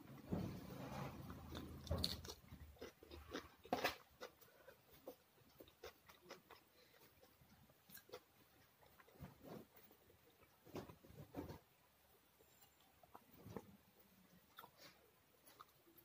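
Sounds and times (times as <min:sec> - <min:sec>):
person chewing food: 0:01.0 - 0:11.8, 0:12.4 - 0:16.0.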